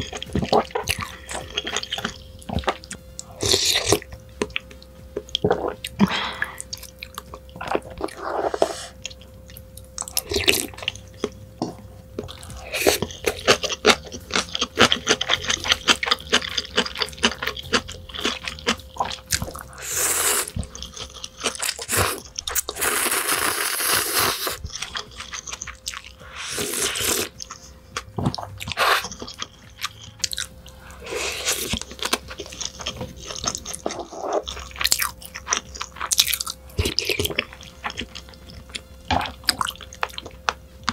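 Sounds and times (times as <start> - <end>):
wet chewing and smacking: 0.0 - 23.2, 24.4 - 40.9
noodle slurps: 26.3 - 27.3.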